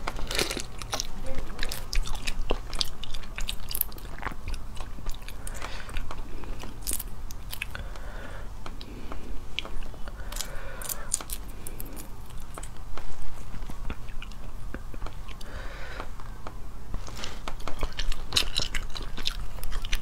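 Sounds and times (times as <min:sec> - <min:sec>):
wet chewing: 0:00.0 - 0:08.0, 0:09.6 - 0:15.6, 0:17.1 - 0:20.0
shells cracking and crunching: 0:05.0 - 0:07.8, 0:10.2 - 0:12.8, 0:17.6 - 0:20.0.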